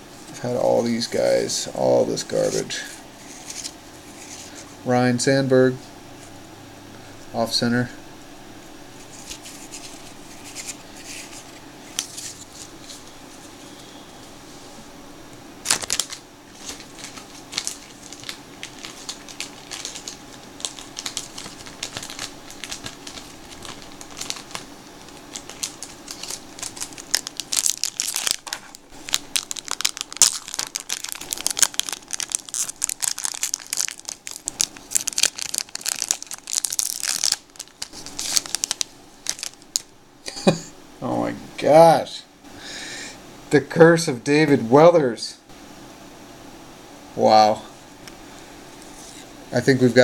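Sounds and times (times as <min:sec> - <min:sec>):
wrapper crinkling and crackling: 0:02.2 - 0:04.7, 0:09.1 - 0:13.2, 0:15.6 - 0:39.9.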